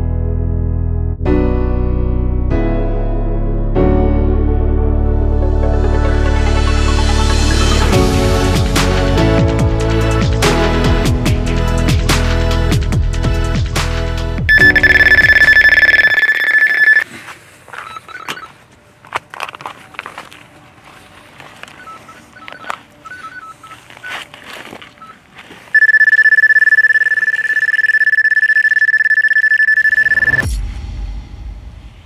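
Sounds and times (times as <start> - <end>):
bite alarm continuous tone: 14.5 - 17.0, 24.9 - 30.4
faint single beeps: 14.5 - 17.0.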